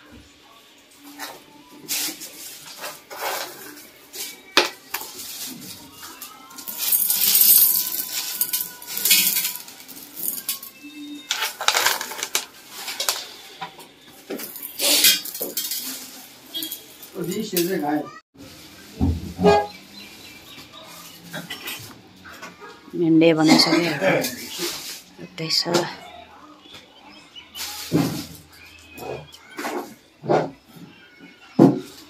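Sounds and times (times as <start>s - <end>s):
dishes and utensils clattering: 2.6s - 17.8s.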